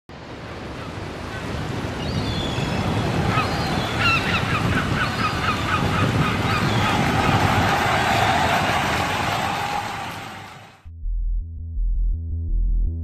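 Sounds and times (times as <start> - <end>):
surf rushing: 0.2 - 10.8
bird squawking: 0.8 - 7.3.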